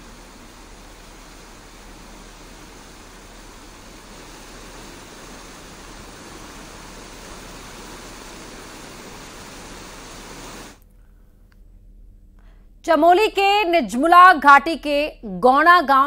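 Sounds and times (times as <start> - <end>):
fast-flowing water rushing: 0.0 - 10.8.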